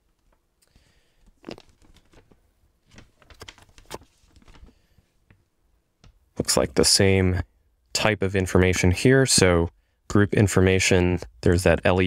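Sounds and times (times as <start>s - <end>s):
paper rustling and crinkling: 1.2s - 5.0s.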